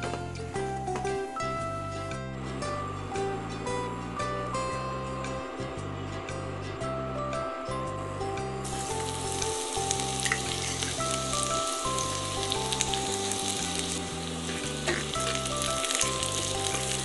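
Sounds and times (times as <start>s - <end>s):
background music: 0.0s - 17.0s
garlic sizzling in hot oil: 8.6s - 17.0s.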